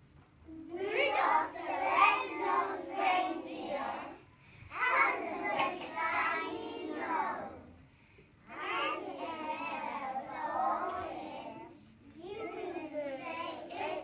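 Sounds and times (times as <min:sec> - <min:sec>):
children singing in unison: 0:00.8 - 0:04.2, 0:04.8 - 0:07.7, 0:08.5 - 0:11.7.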